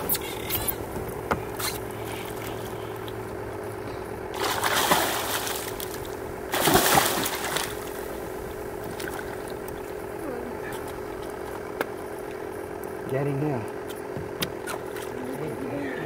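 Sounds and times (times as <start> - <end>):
fish thrashing and splashing: 4.3 - 10.1.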